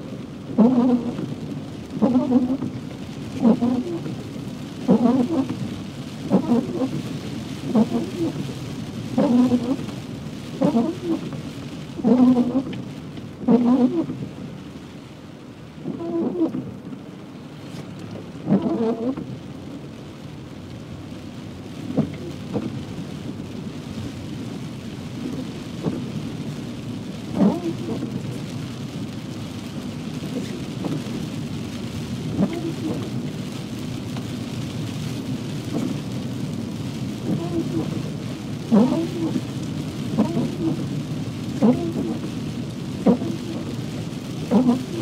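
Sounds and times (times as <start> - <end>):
heavy rain on a car: 0.0 - 45.0
tyre and road noise: 21.4 - 45.0.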